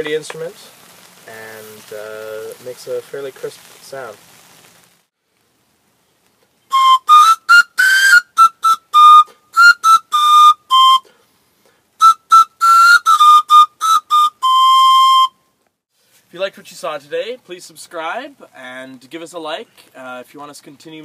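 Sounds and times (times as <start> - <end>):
pan pipe tune: 6.7 - 11.2, 12.0 - 15.4.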